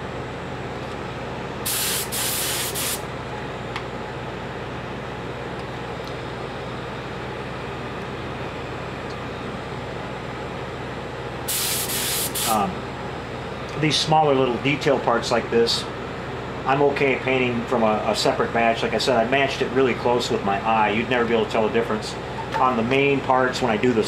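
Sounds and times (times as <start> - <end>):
heat gun blowing: 1.7 - 3.0, 11.5 - 12.6
paint spray gun hisses: 1.7 - 3.0, 11.5 - 12.6.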